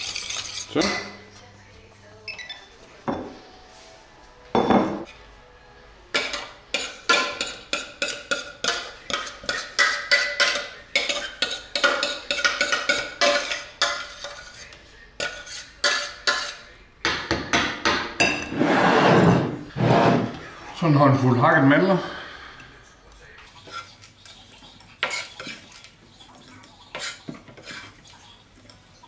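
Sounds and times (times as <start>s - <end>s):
metal spoon scraping steel pot: 0.0s - 1.0s, 11.1s - 16.6s.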